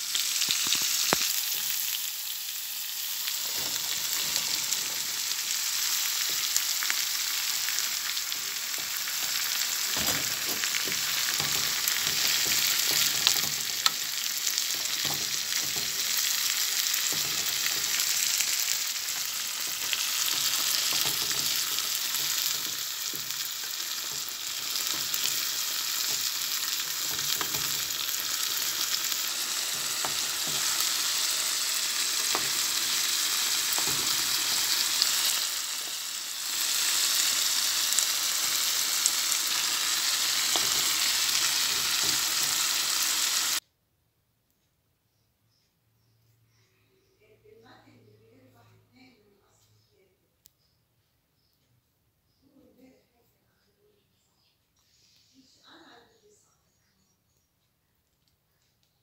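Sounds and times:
beans sizzling in pan: 0.0 - 43.6
wooden spatula scraping pan: 8.7 - 35.3.

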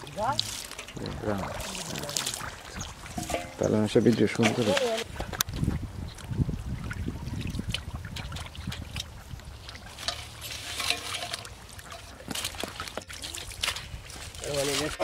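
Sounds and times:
muddy water sloshing: 0.0 - 15.0
small water splashes: 0.0 - 15.0.

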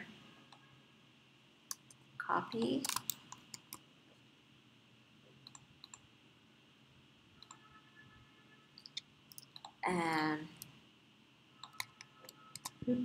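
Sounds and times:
computer clicks: 1.7 - 3.8, 5.4 - 6.1, 7.4 - 7.6, 8.8 - 9.8, 11.6 - 12.8.

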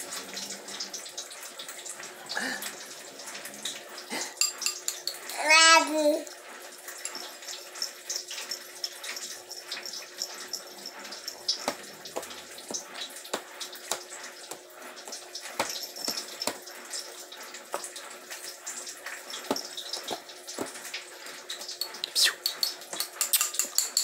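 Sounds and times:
baby mouth clicks and smacks: 21.9 - 23.7.

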